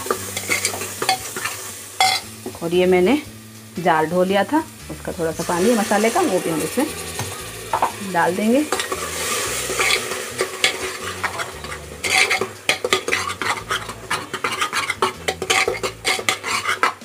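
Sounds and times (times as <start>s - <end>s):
masala sizzling: 0.0s - 17.0s
ladle scraping a metal pot: 0.1s - 2.2s, 6.0s - 8.0s, 8.6s - 17.0s.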